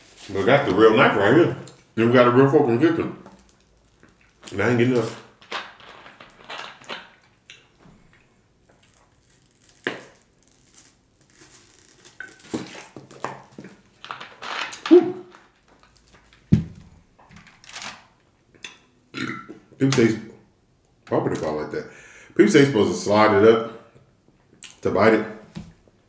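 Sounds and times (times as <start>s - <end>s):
plastic bottle crinkling: 3.2s - 18.1s
person gulping: 19.2s - 19.8s.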